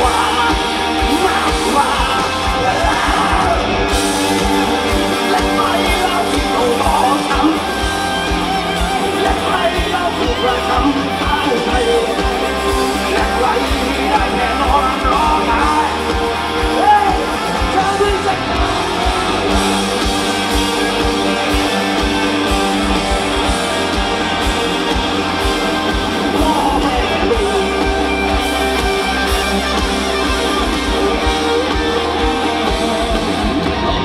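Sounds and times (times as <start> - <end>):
person singing: 0.0 - 19.2, 26.1 - 28.7
bass guitar: 0.0 - 34.0
drums: 0.0 - 34.0
electric guitars: 0.0 - 34.0.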